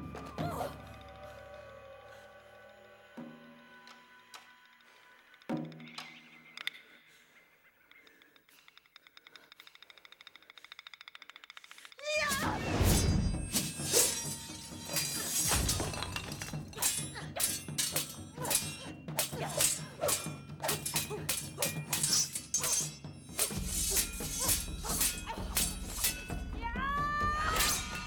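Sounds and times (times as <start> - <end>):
drum-led film score: 0.0 - 28.0
swords clashing: 12.0 - 26.5, 27.4 - 28.0.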